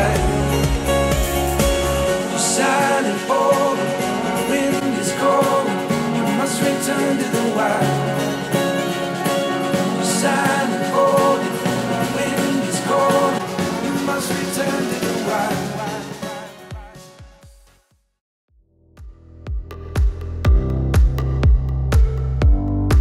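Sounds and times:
song through studio monitors: 0:00.0 - 0:17.8.

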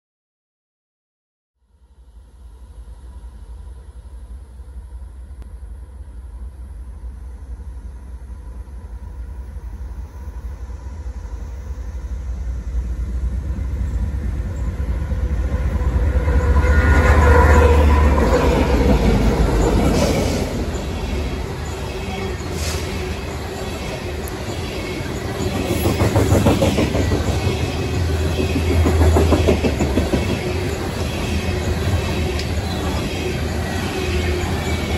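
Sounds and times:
diesel locomotive rumble: 0:04.1 - 0:34.9
train wheels clattering on rails: 0:13.2 - 0:34.9.

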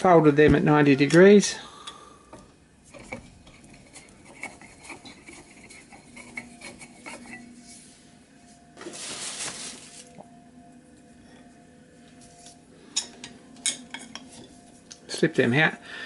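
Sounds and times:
metal scraping rasp: 0:02.9 - 0:07.8.

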